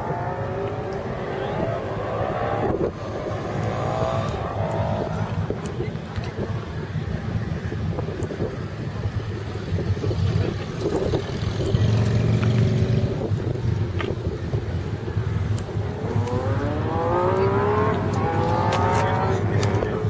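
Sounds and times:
motorcycle engine accelerating: 0:00.0 - 0:06.1, 0:15.7 - 0:20.0
motorcycle engines rumbling: 0:00.0 - 0:20.0.

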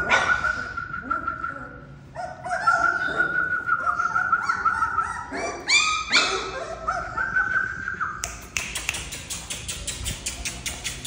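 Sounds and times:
high puppy yelps: 0:00.0 - 0:00.8, 0:02.1 - 0:07.6
puppies whining and yipping: 0:00.0 - 0:08.2.

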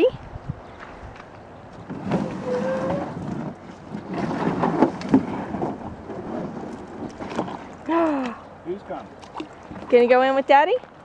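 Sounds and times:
canoe hull scraping over shore: 0:01.8 - 0:07.9
short squeak: 0:02.1 - 0:03.2.

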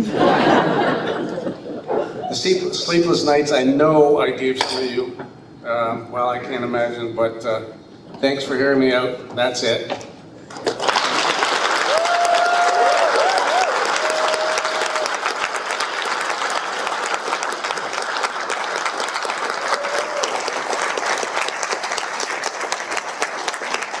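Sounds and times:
audience applauding: 0:10.5 - 0:24.0.

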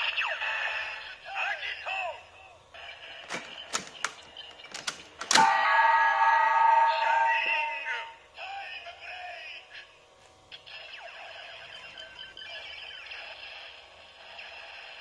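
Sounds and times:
sharp plastic clicks: 0:03.2 - 0:05.5.

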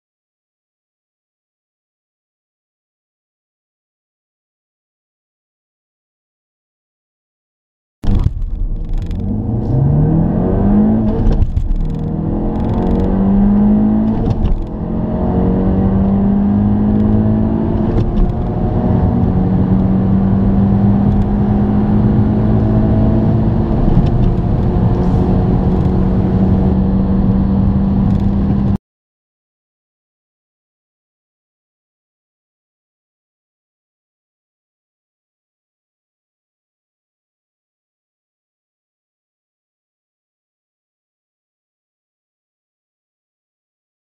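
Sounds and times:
car engine accelerating: 0:08.0 - 0:28.8.

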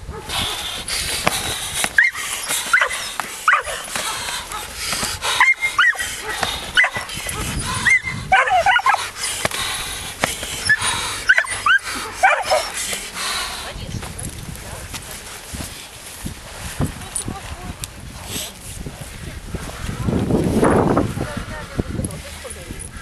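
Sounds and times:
dog barking and yipping: 0:00.1 - 0:00.6, 0:02.0 - 0:04.7, 0:05.3 - 0:09.1, 0:10.6 - 0:12.8.

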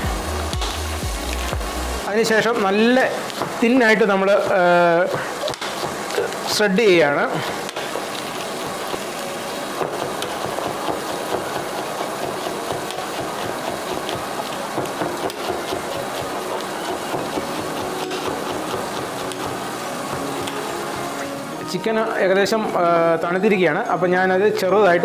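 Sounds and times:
knife tapping cutting board: 0:03.3 - 0:03.6, 0:04.4 - 0:06.2, 0:09.8 - 0:14.2, 0:14.8 - 0:19.6
lettuce leaves being sliced: 0:09.7 - 0:21.4.

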